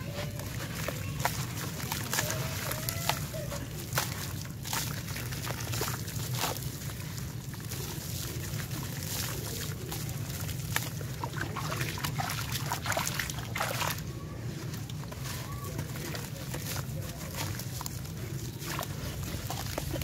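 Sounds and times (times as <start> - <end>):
crumbs trickling into water: 0.0 - 20.0
chunk sloshed in water: 0.2 - 14.1
crumbling chunk crackling: 12.7 - 20.0.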